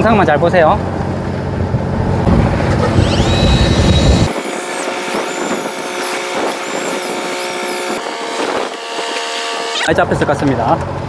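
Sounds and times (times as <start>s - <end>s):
small electric motor whining: 2.6s - 10.0s.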